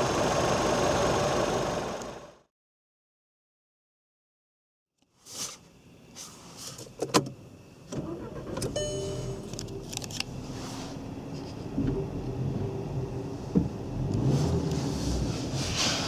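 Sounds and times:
car engine cranking and idling: 0.0s - 2.4s, 7.9s - 16.0s.

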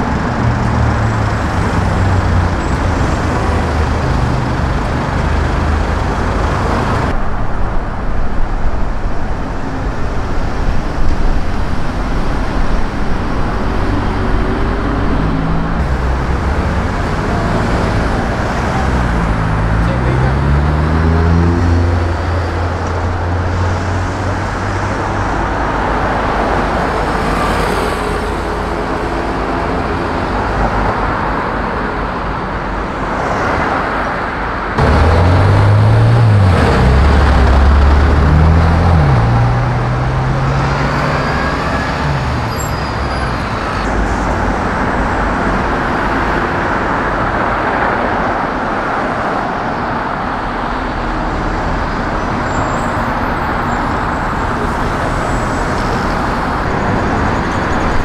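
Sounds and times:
city street traffic: 0.0s - 58.0s
vehicle engine accelerating: 12.0s - 30.9s, 34.8s - 46.3s.

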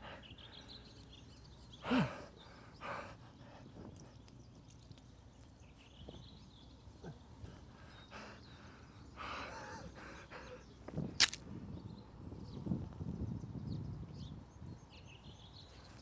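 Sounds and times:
quiet outdoor ambience: 0.0s - 16.0s
man laughing: 6.9s - 7.4s.

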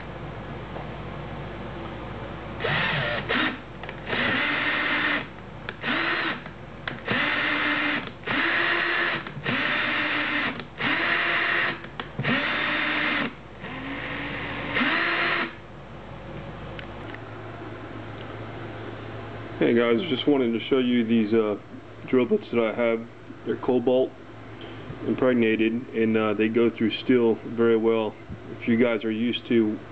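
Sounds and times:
drill whine: 2.6s - 15.6s.

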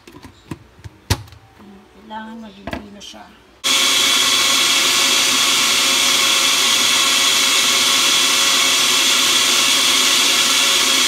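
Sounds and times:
blender running: 3.6s - 11.0s.

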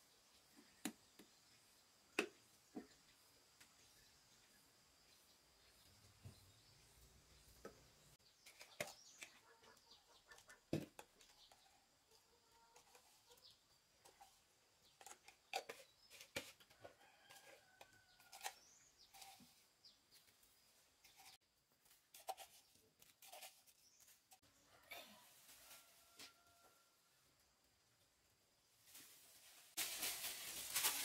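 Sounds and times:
chickens clucking: 9.2s - 13.5s.

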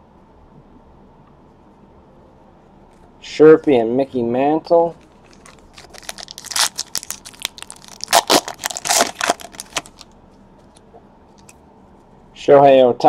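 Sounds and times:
foil wrapper crinkling and tearing: 5.0s - 10.1s.

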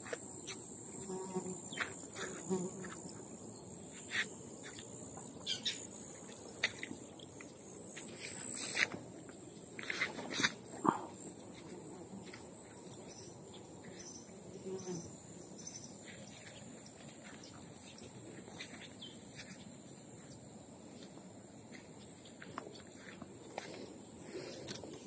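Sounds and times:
insects trilling: 0.0s - 25.0s
bird chirps: 5.4s - 5.9s
footsteps rustling through grass: 7.9s - 10.7s.

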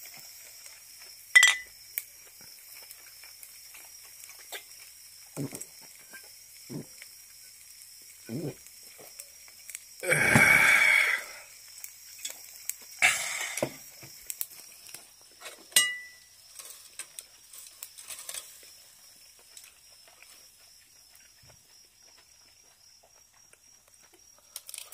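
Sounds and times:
meat sizzling on grill: 0.0s - 22.3s, 24.0s - 24.9s
ringing clink: 1.4s - 1.7s, 15.8s - 16.2s
loud hissing bursts: 9.6s - 14.9s.

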